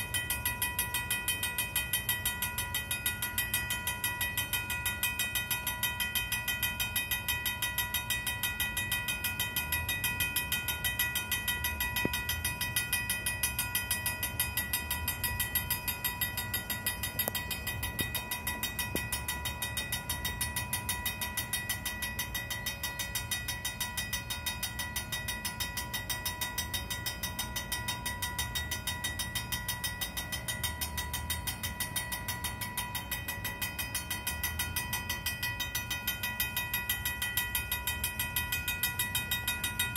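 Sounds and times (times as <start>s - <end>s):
railroad crossing bell ringing: 0.0s - 39.9s.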